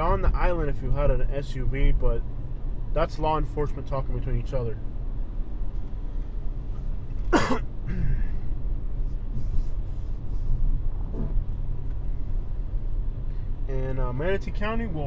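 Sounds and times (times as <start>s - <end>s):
car engine and road noise: 0.0s - 15.0s
person coughing: 7.3s - 8.4s.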